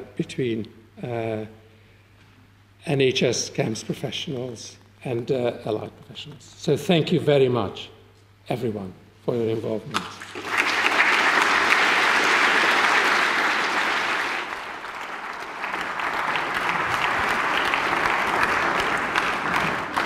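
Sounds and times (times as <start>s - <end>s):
large audience applauding: 10.2s - 20.0s.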